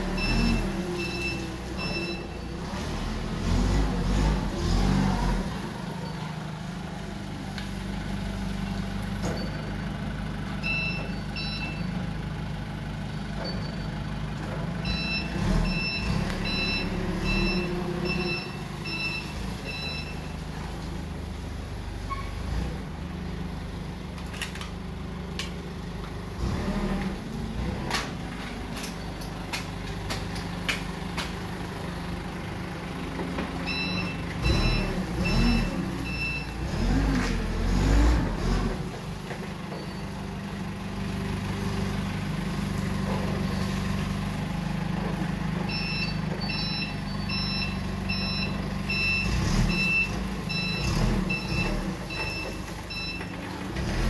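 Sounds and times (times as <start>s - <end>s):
reversing beeper: 0.0s - 2.5s, 14.9s - 20.2s, 33.7s - 36.5s, 45.7s - 53.3s
forklift engine running: 0.0s - 54.0s.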